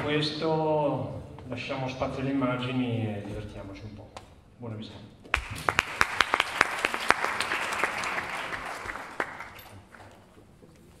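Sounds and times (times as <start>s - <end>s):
audience applauding: 5.3s - 10.0s.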